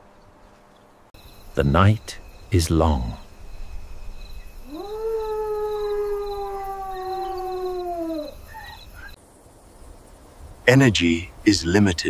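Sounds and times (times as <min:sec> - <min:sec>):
long animal howl: 0:04.6 - 0:09.2.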